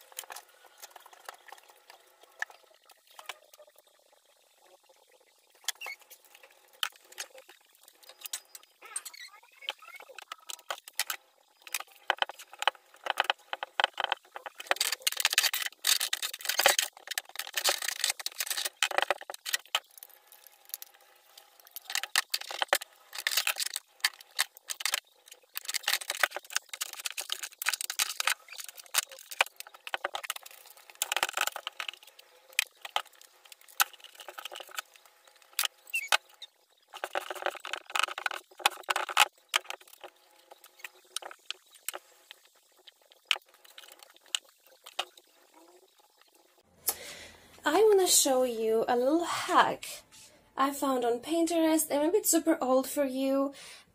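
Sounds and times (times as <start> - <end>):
objects clicking and clinking: 9.7 - 42.5.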